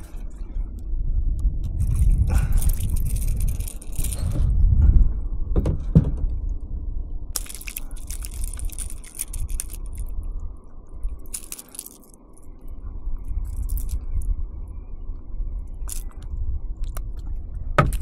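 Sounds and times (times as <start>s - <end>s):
fish handling clicks and scraping: 0.0s - 4.6s, 7.4s - 10.2s, 11.1s - 12.6s
wind buffeting the microphone: 0.0s - 18.0s.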